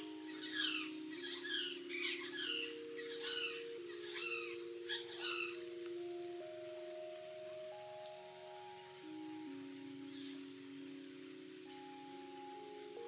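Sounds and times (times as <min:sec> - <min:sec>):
parrots calling: 0:00.0 - 0:05.6
soft background music: 0:00.0 - 0:13.0.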